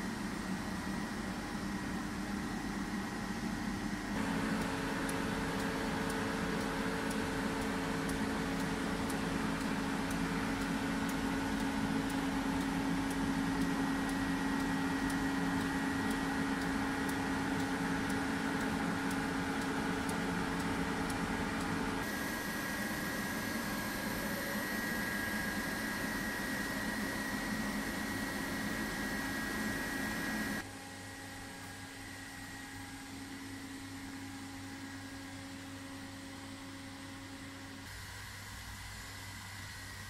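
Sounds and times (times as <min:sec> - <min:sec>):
machining center humming: 0:00.0 - 0:40.0.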